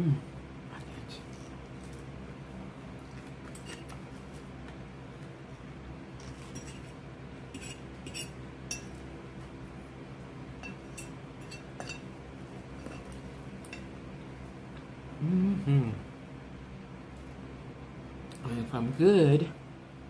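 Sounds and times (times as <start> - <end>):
steady low hum: 0.0 - 20.0
utensils clinking against dishware: 10.6 - 12.1.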